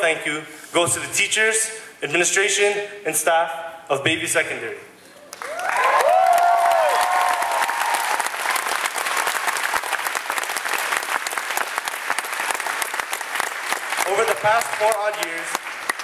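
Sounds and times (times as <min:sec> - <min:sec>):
audience applauding: 0:05.3 - 0:16.0.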